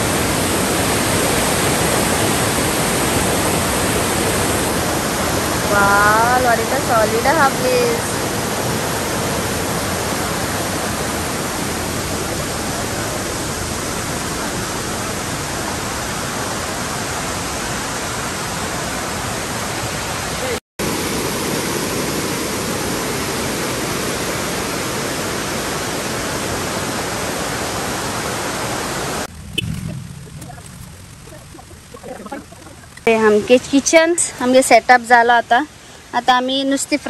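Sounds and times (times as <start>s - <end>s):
stream rushing over rocks: 0.0s - 29.3s.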